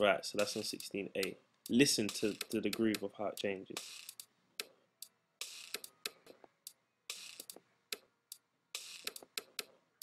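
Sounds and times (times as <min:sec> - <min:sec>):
hi-hat ticks: 0:00.0 - 0:09.7
snare hits: 0:00.4 - 0:04.8, 0:07.1 - 0:07.6.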